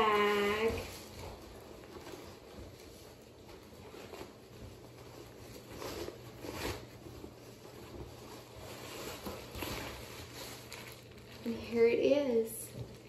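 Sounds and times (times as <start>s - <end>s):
cloth bag rustling: 0.0s - 13.0s.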